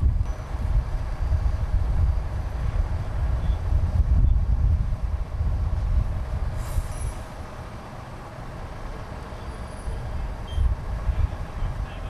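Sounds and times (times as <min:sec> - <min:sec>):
traffic rumble: 0:00.0 - 0:12.0
brief hiss: 0:06.6 - 0:07.4.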